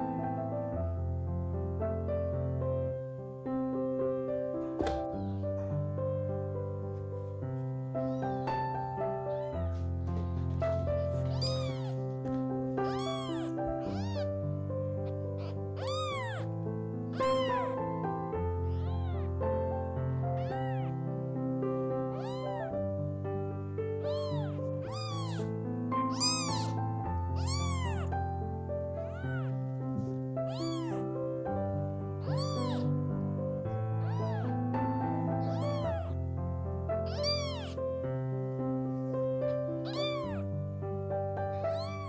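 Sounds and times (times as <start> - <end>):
kitten meowing: 4.7 - 5.7, 7.8 - 23.0, 24.0 - 33.0, 33.6 - 36.2, 37.0 - 38.0, 39.0 - 40.6, 41.4 - 42.0.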